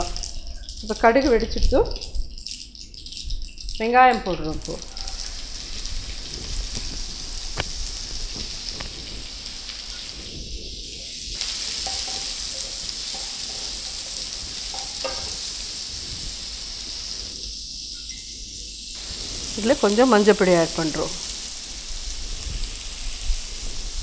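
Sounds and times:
onions sizzling in hot oil: 0.0s - 24.0s
spatula tapping pan: 11.5s - 15.5s.

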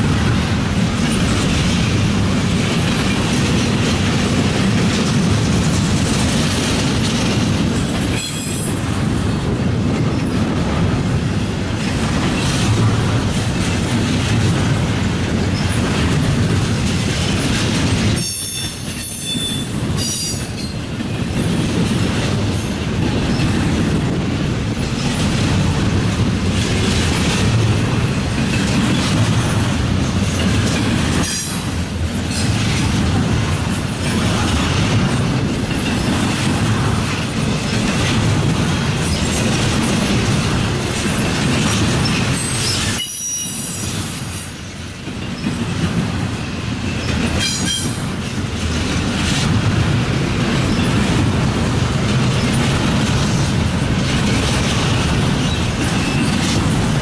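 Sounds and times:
freight train wheels rumbling on rail: 0.0s - 57.0s
high wheel squeals: 42.4s - 44.0s.

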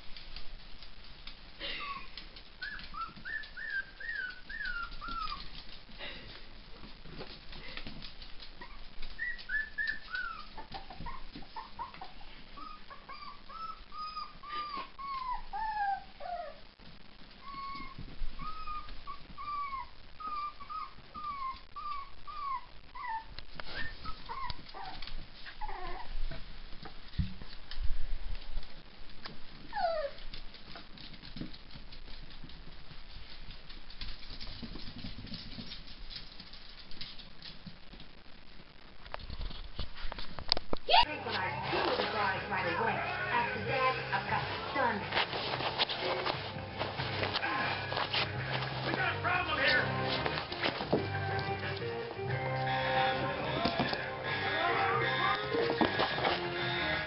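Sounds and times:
puppies whimpering: 1.6s - 5.4s, 8.6s - 16.6s, 17.4s - 26.1s.

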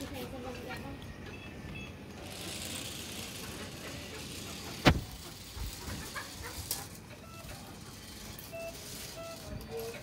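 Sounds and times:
toy car electric motors whirring: 0.0s - 10.0s.

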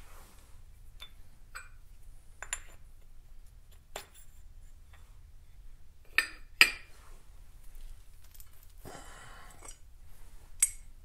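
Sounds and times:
metal tools clinking: 7.6s - 8.8s.

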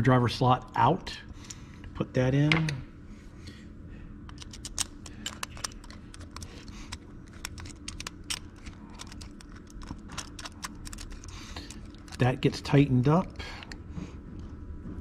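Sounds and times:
low steady hum: 0.0s - 15.0s
screwdriver and small parts clicking: 4.3s - 12.2s.

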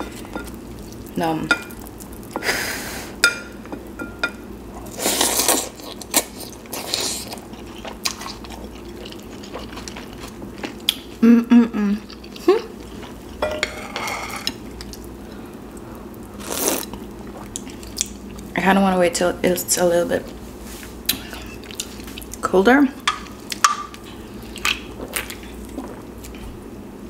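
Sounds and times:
slurping and chewing noodles: 4.8s - 11.0s
short hummed sound: 11.2s - 12.8s.

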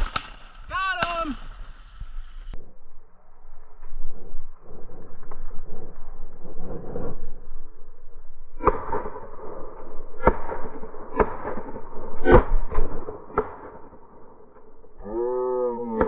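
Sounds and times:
slowed shotgun shots booming: 0.0s - 2.4s, 8.6s - 14.8s.

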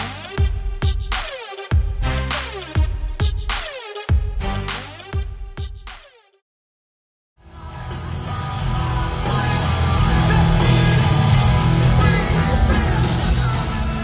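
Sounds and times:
live heavy rock band: 7.4s - 14.0s.

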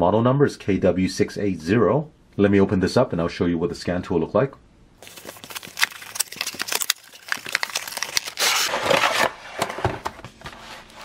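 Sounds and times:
cardboard clicks and rustles: 5.0s - 11.0s
cardboard scraping rustle: 5.0s - 11.0s.

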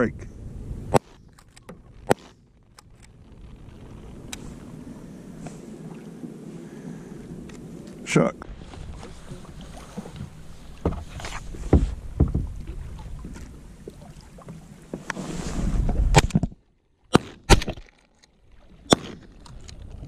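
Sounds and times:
wind on microphone: 2.8s - 14.4s, 15.0s - 16.5s
water lapping against boat: 3.4s - 16.2s
shotgun shots: 17.1s - 17.8s.

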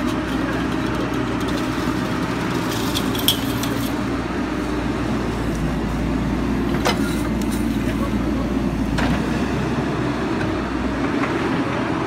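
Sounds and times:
excavator diesel engine running: 0.0s - 12.0s.

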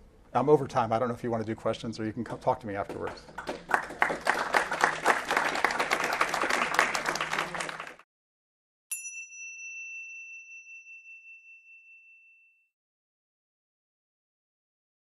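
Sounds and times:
audience applause: 3.3s - 8.0s
bell-like chime ringing: 8.9s - 12.8s.

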